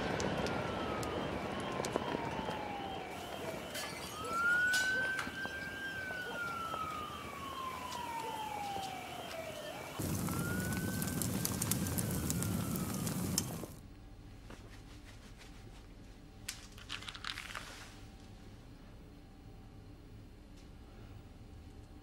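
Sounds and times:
crackling hiss: 0.0s - 13.8s
emergency siren wailing: 0.0s - 13.8s
fast warbling siren: 0.0s - 13.8s.

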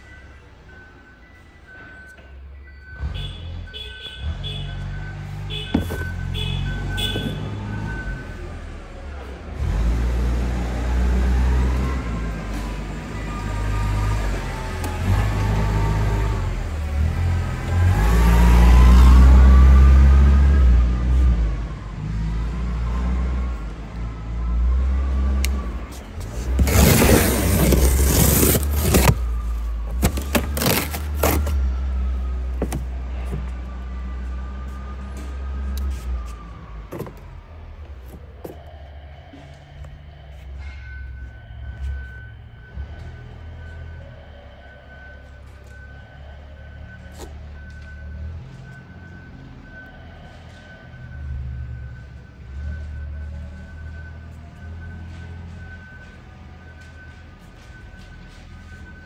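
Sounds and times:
forklift engine rumbling: 2.6s - 59.0s
plastic wrap scraping phone: 26.6s - 29.2s, 30.0s - 31.6s
sharp plastic crackles: 26.6s - 31.6s.

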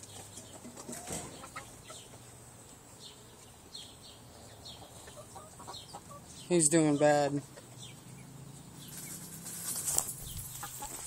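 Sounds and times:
brief rustle: 8.9s - 11.0s.

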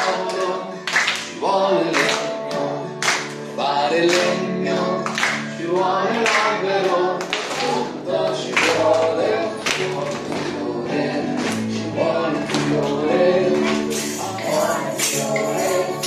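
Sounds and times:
children clapping: 0.0s - 16.0s
children's song with accompaniment: 0.0s - 16.0s.

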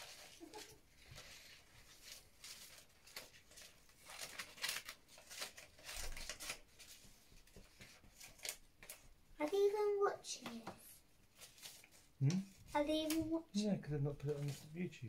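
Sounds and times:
paper rustling: 0.0s - 10.6s, 11.3s - 13.4s, 14.2s - 14.8s
scissors snipping paper: 2.0s - 6.7s.

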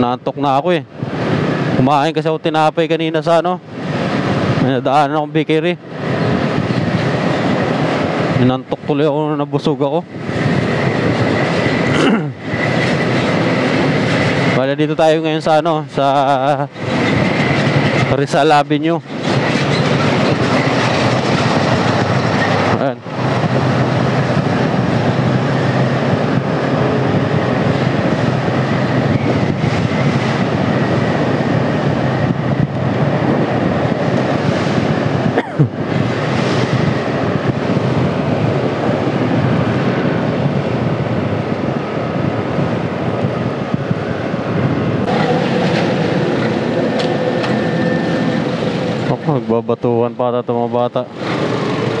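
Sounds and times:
rushing wind and road noise: 0.0s - 52.0s
scooter engine: 45.0s - 49.1s.

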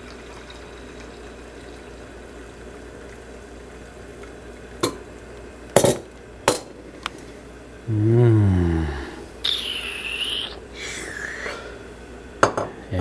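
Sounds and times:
cup and tableware clinking: 12.4s - 12.7s.

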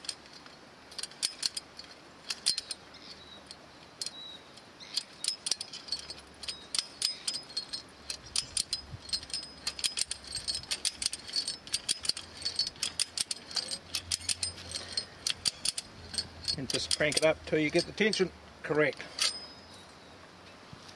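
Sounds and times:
ratchet pawl clicking: 5.0s - 18.3s.

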